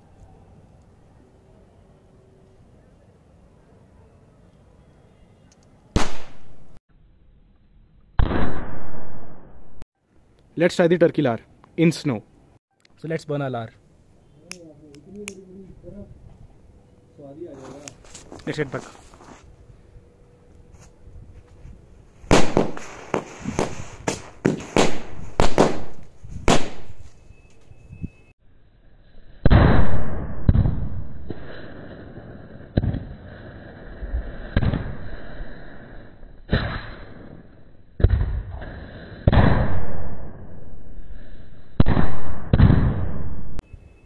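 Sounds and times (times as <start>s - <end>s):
firecrackers banging: 22.3s - 27.2s.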